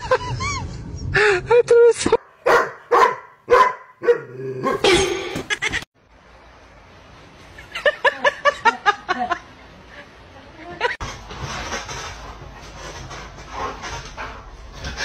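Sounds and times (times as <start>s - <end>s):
dog barking: 2.2s - 4.9s.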